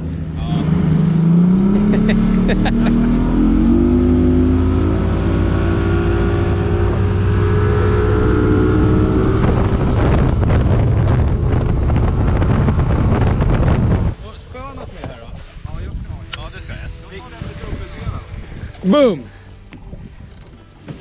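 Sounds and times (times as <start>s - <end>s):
outboard motor running: 0.0s - 14.2s
wind buffeting microphone: 3.4s - 20.7s.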